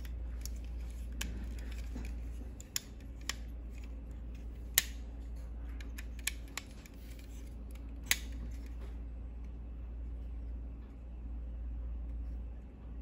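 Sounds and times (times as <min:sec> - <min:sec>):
plastic toy parts clicking: 0:00.0 - 0:05.0, 0:05.8 - 0:08.7
steady low hum: 0:00.0 - 0:13.0.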